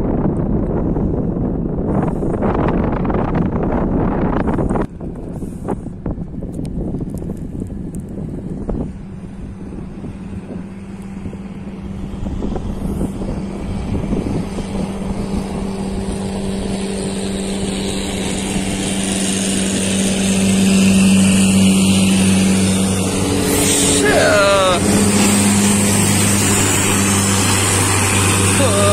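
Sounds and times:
speedboat engine humming: 0.0s - 28.9s
rushing hiss of wake and spray: 17.8s - 28.9s.

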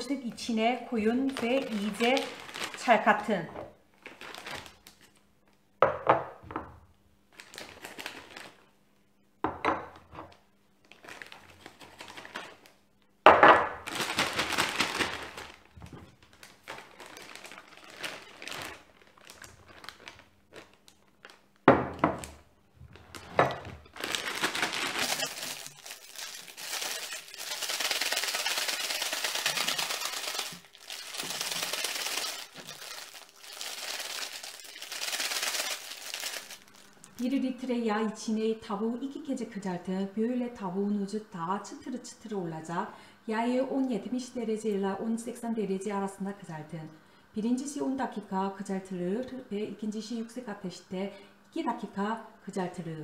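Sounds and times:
plastic bag crinkling: 0.8s - 5.2s, 7.3s - 8.7s, 10.8s - 12.8s, 13.7s - 21.6s, 22.2s - 37.4s
flour pouring: 24.0s - 37.2s.

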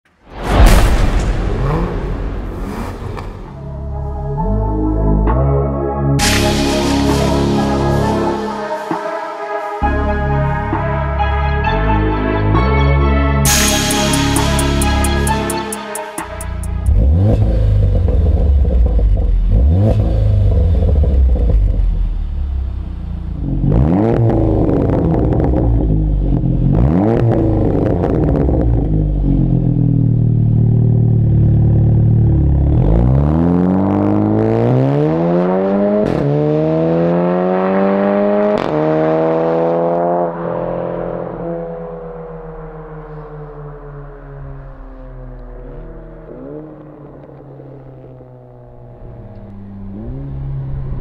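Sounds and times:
car engine revving: 0.7s - 4.8s, 13.5s - 51.0s
car accelerating hard: 23.4s - 29.6s, 31.6s - 51.0s
exhaust cracks on upshifts: 42.3s - 50.7s.

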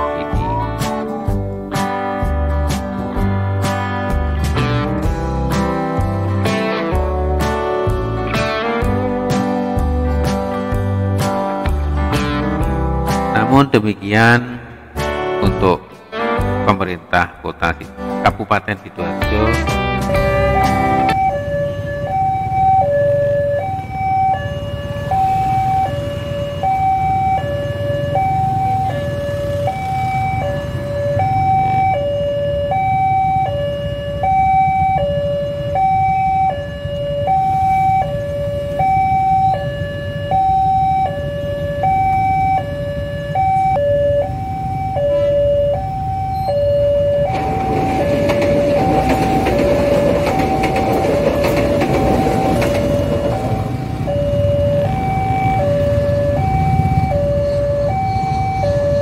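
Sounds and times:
train running over crossing: 0.0s - 59.0s
level crossing two-tone alarm: 19.4s - 59.0s.

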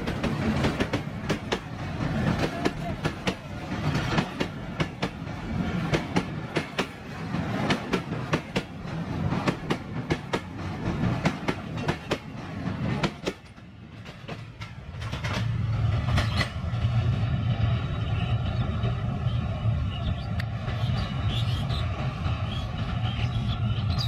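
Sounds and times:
train wheels clicking over rail joints: 0.0s - 17.0s.

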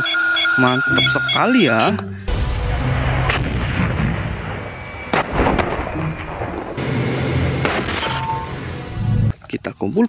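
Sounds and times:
sharp bangs: 2.3s - 9.0s
tank engine and tracks rumbling: 2.3s - 9.3s.

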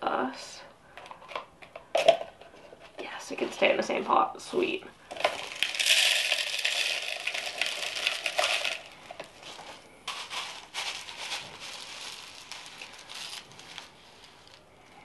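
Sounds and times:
plastic pot crinkling and crackling: 5.1s - 15.0s.

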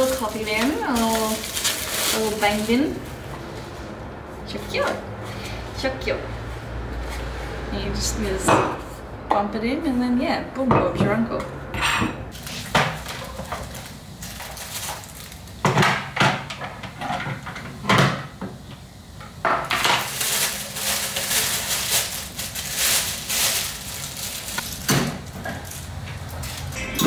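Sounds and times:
plastic wrapping crinkling: 0.0s - 3.7s, 12.3s - 15.6s, 19.8s - 26.8s.

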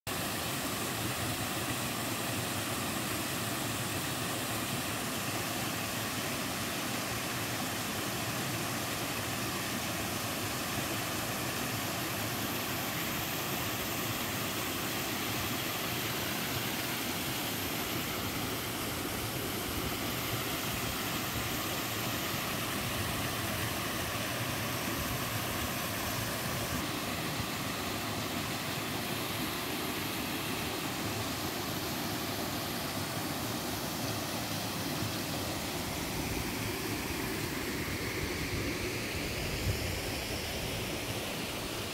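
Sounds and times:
waterfall rushing over rock: 0.1s - 41.9s.

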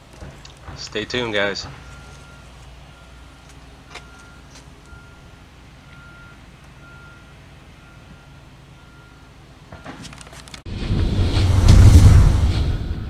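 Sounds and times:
vehicle backup alarm beeping: 0.8s - 10.1s.

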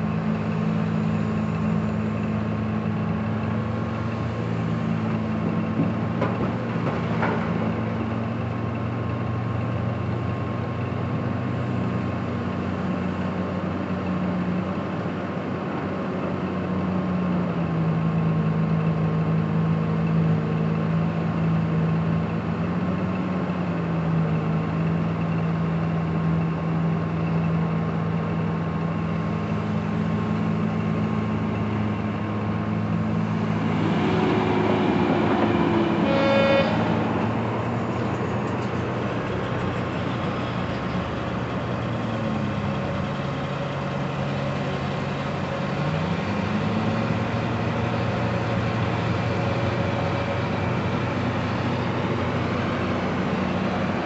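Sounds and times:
bucket loading truck rumble: 0.0s - 8.6s, 27.9s - 54.0s
diesel engines droning: 0.0s - 54.0s
short horn toot: 36.0s - 37.0s.

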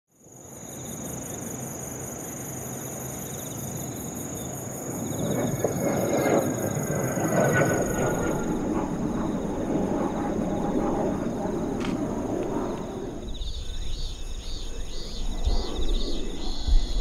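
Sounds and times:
insects buzzing: 0.2s - 17.0s
jet engines rushing: 4.2s - 17.0s.

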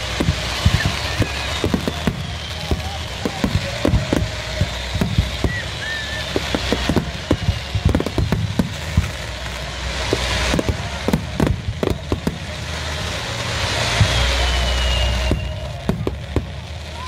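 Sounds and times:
fireworks bangs: 0.0s - 17.0s
steady hiss: 0.0s - 17.0s.

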